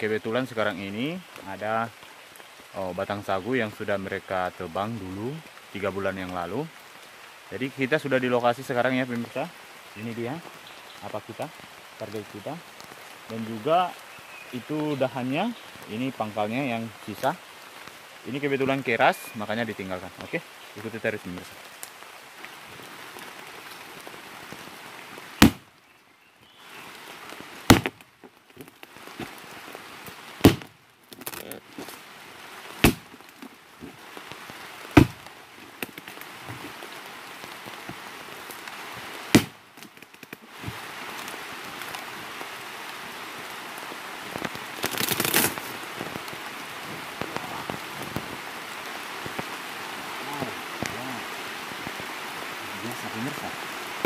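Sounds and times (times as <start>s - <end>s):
steady rain: 0.0s - 54.0s
axe chopping wood: 25.4s - 25.6s, 27.7s - 28.0s, 30.4s - 30.7s, 32.8s - 33.2s, 35.0s - 36.1s, 39.3s - 40.0s.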